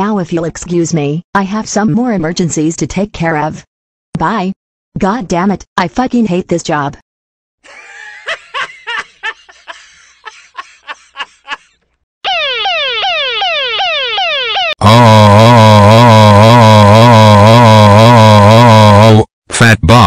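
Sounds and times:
harsh wavering siren alarm: 12.2s - 18.6s
electronic alarm falling sweeps: 12.3s - 14.8s.

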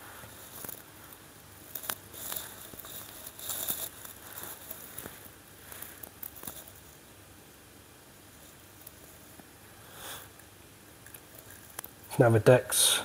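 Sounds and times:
faint rustling: 0.0s - 7.2s.

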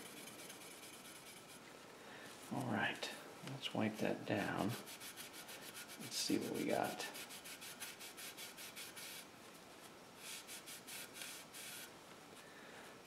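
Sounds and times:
cloth wiping plastic: 3.9s - 9.2s.

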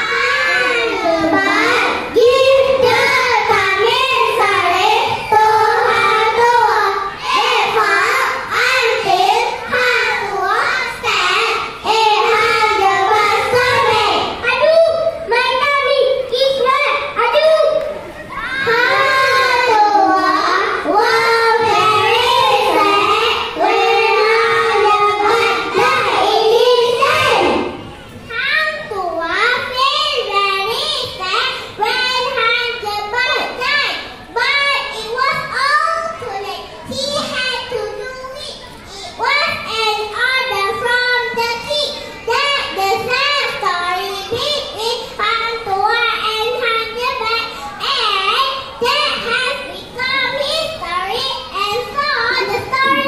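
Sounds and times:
children singing in unison: 0.0s - 14.4s, 18.5s - 27.8s, 52.3s - 53.0s.

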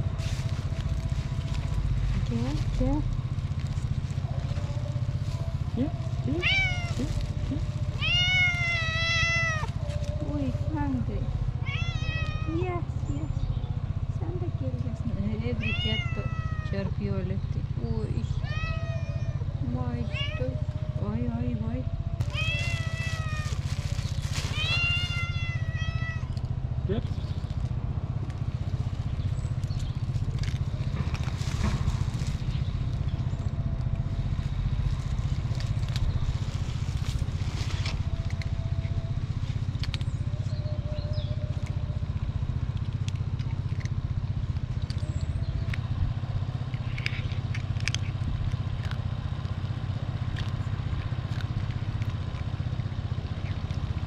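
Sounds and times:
cat crunching dry kibble: 0.0s - 11.0s, 22.2s - 40.6s, 41.4s - 54.0s
steady low rumble: 0.0s - 54.0s.

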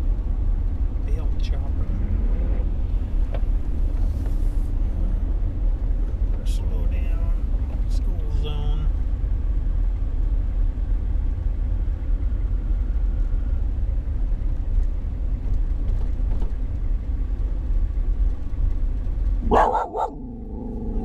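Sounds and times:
vehicle rumble on wet road: 0.0s - 21.0s
dog barking: 19.4s - 20.4s.

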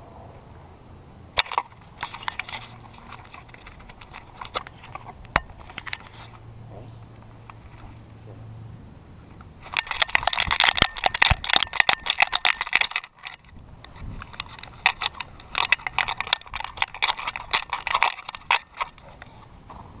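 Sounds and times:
dog collar jingling: 1.4s - 4.6s, 9.6s - 13.5s, 14.2s - 19.2s.

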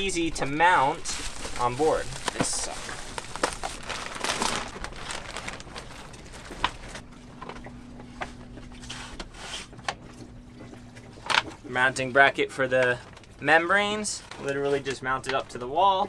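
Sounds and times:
plastic wrap rustling: 0.0s - 7.1s.

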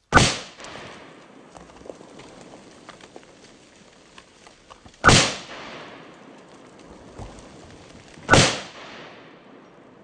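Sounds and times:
pistol shots with echo: 0.1s - 0.9s, 5.0s - 6.0s, 8.3s - 9.7s.

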